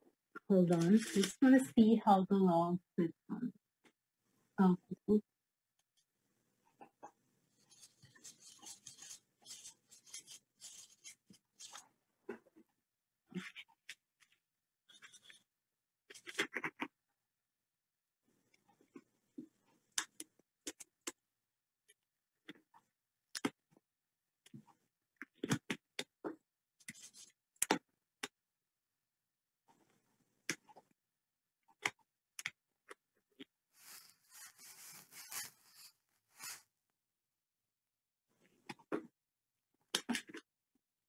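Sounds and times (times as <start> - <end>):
palette knife scraping: 7.6 - 11.8, 33.8 - 36.7.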